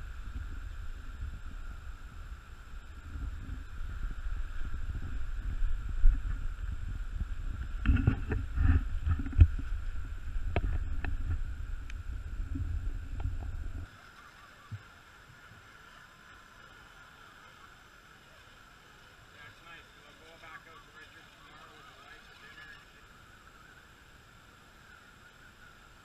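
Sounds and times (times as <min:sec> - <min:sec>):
wind rumble on microphone: 0:00.0 - 0:13.9.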